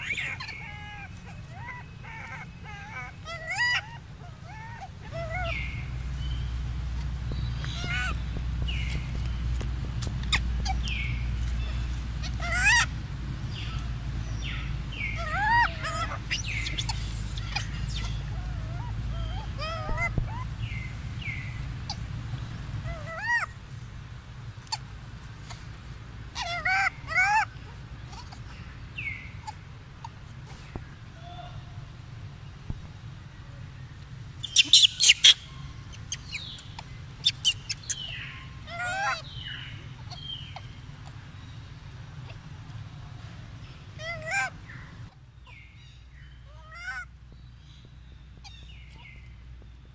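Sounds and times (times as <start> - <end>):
baby monkey cooing: 0.0 - 6.2, 6.9 - 9.4, 10.0 - 23.6, 26.3 - 31.8, 34.4 - 45.7, 46.5 - 47.1.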